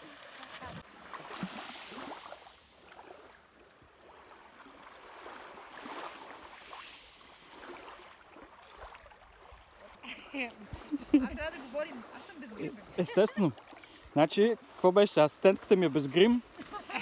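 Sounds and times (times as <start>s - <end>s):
sea water lapping in shallows: 0.0s - 17.0s.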